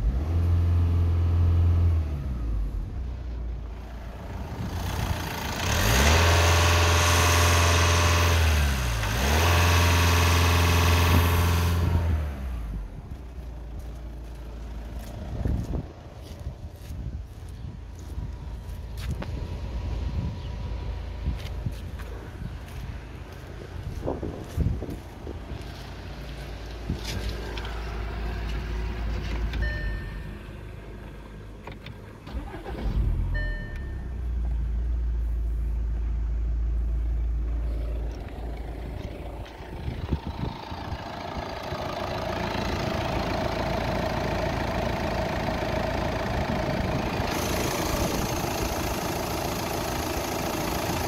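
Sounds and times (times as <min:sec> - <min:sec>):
diesel engine starting and idling: 0:00.0 - 0:51.0
short electronic chimes: 0:29.6 - 0:30.4, 0:33.3 - 0:34.2.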